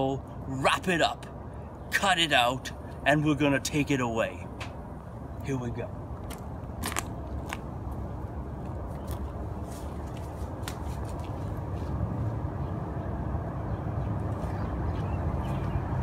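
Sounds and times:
clicks and scuffs of climbing: 8.6s - 12.0s.

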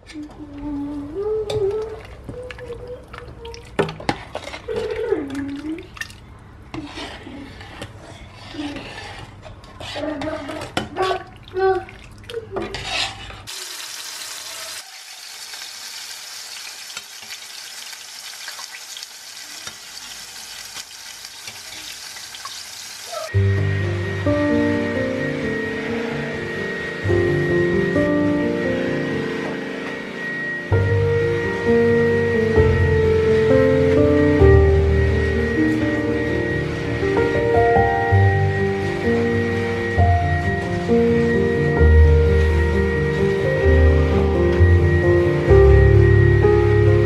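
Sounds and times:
steady sizzling hiss: 13.5s - 25.7s.

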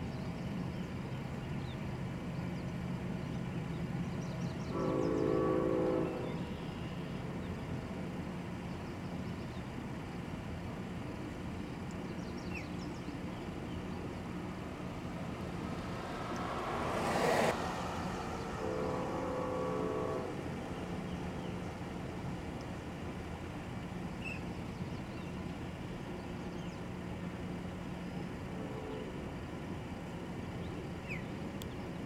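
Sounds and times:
traffic hum: 0.0s - 32.0s
vehicle horn chord: 4.7s - 6.5s, 15.6s - 21.2s
vehicle passing: 13.6s - 22.5s.

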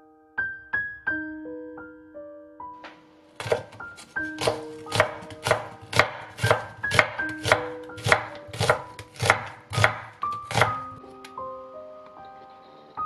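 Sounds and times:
soft background music: 0.0s - 13.0s
knife chopping on wooden board: 3.4s - 11.0s.

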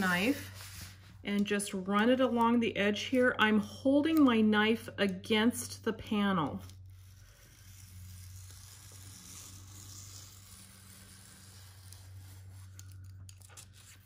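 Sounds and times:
craft knife slicing paper: 6.6s - 14.0s.

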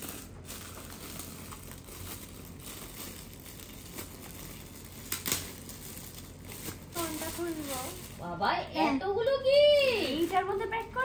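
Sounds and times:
foil gift wrap crinkling: 0.0s - 11.0s.

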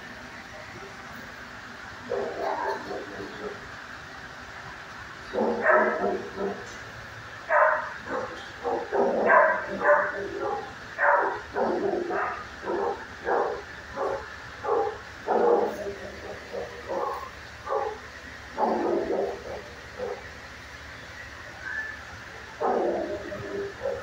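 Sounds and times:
dog barking: 2.1s - 3.6s, 5.3s - 6.8s, 7.5s - 18.0s, 18.6s - 20.3s, 22.6s - 24.0s.

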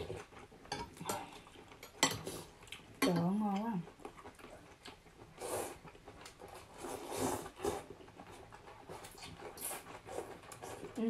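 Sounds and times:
noodles being slurped: 4.4s - 11.0s.

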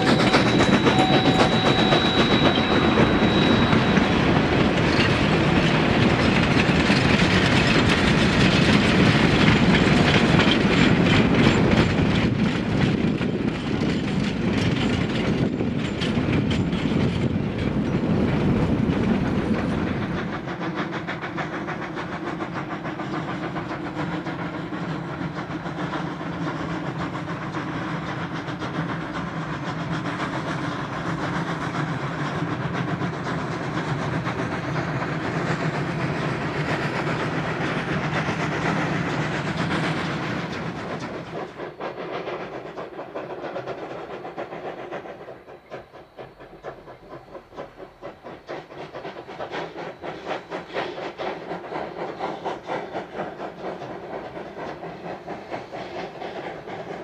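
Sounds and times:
train wheels clicking over rail joints: 0.0s - 57.0s.

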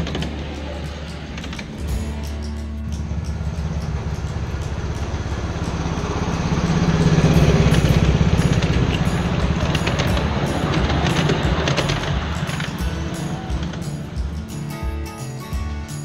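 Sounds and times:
miniature locomotive engine passing: 0.0s - 16.0s.

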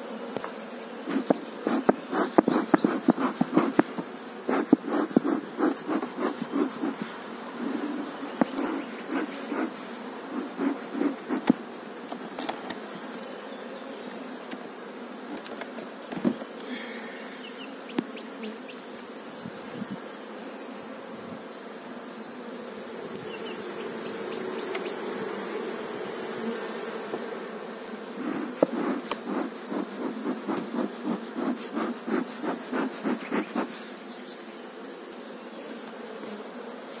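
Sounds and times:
bees buzzing: 0.0s - 37.0s
rapid pulsing sound: 1.1s - 7.9s, 28.2s - 33.7s.

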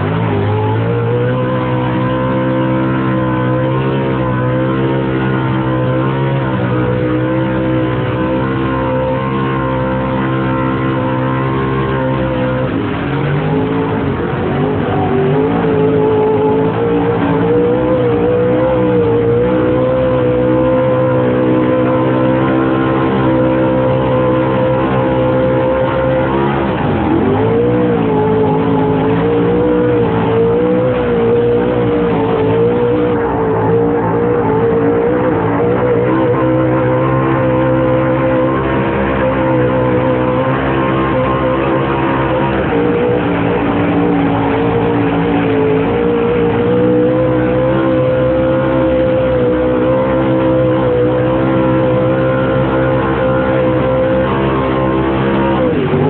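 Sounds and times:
racing engine at high revs: 0.0s - 56.0s.

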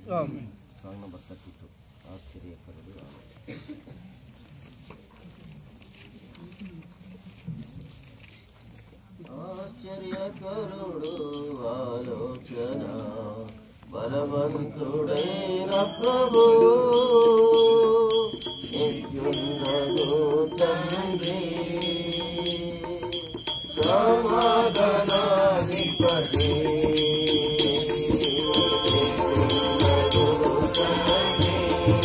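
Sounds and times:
jingling hand percussion: 10.9s - 13.2s, 14.8s - 32.0s
hand drum beats: 15.2s - 32.0s.

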